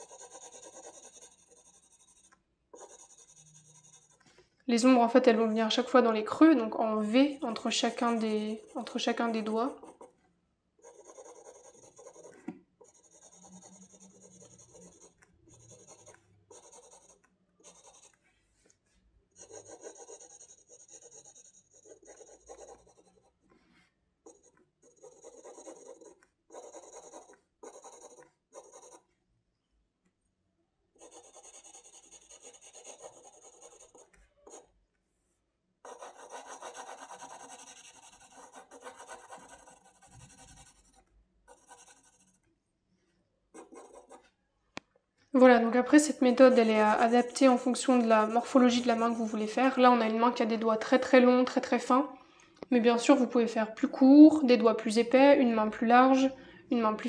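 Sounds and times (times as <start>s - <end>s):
pencil scratching on paper: 0.0s - 10.2s, 10.8s - 18.7s, 19.3s - 23.5s, 24.2s - 29.1s, 31.0s - 34.7s, 35.8s - 42.4s, 43.5s - 44.3s, 46.0s - 51.2s.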